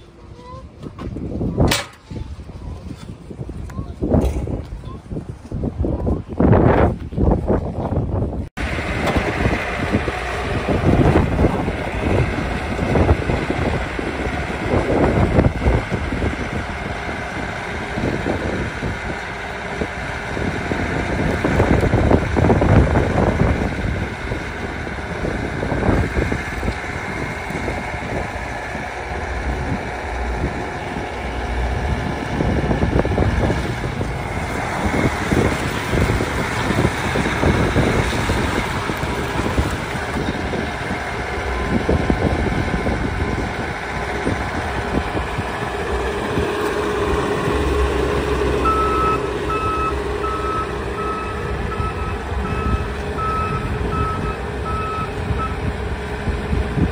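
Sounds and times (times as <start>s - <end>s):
diesel engine running: 0.0s - 56.9s
backup alarm beeping: 48.6s - 55.6s.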